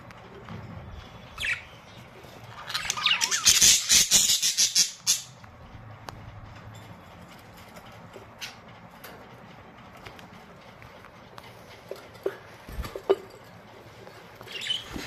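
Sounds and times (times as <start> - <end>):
budgerigars chirping and calling: 1.0 - 5.4, 14.4 - 15.0.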